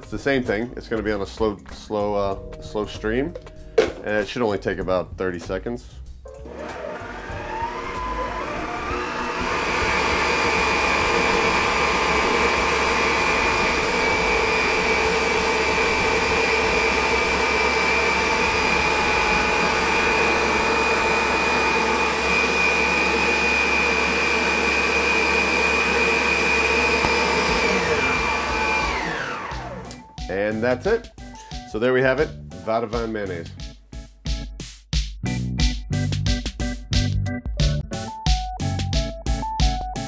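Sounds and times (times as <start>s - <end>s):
stand mixer motor whining: 6.4s - 30.0s.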